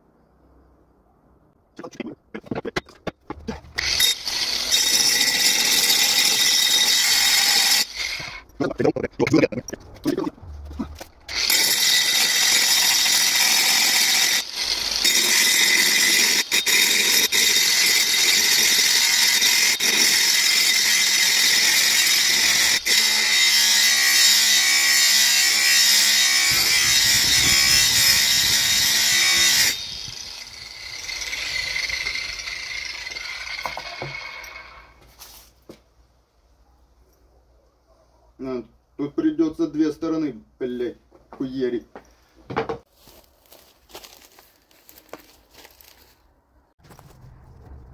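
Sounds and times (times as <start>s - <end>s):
angle grinder grinding steel: 2.6s - 8.6s, 11.3s - 35.0s.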